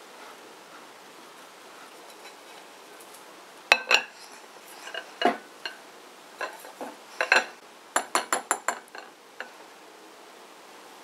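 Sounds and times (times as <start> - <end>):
ceramic bowl and plate clinking: 3.7 - 5.8, 6.4 - 9.6.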